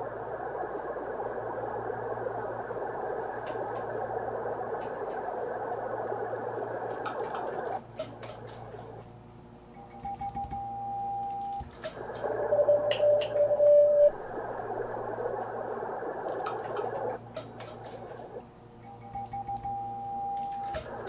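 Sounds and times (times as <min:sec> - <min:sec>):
receiver hiss: 0:00.0 - 0:21.0
switching clicks: 0:09.9 - 0:13.8
steady tone: 0:12.0 - 0:17.2.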